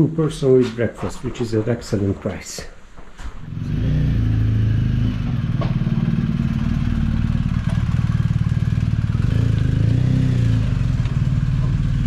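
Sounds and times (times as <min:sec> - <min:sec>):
motorcycle engine running: 0:03.4 - 0:12.0.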